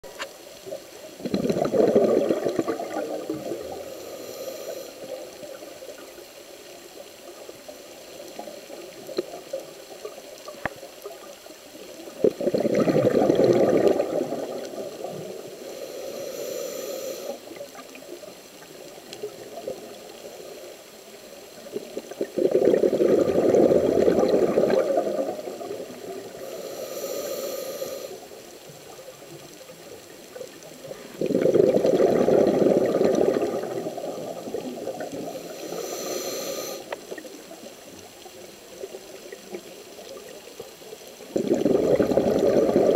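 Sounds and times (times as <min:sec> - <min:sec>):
exhaled bubbles underwater: 0:00.6 - 0:15.8, 0:21.2 - 0:26.9, 0:27.8 - 0:42.9
high regulator hiss: 0:03.4 - 0:05.2, 0:15.5 - 0:17.5, 0:26.4 - 0:28.3, 0:35.3 - 0:37.1.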